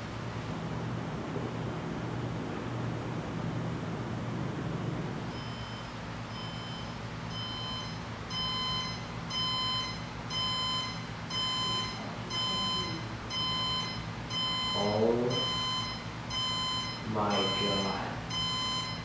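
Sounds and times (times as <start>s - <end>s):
alarm clock beeping: 5.3s - 19.0s.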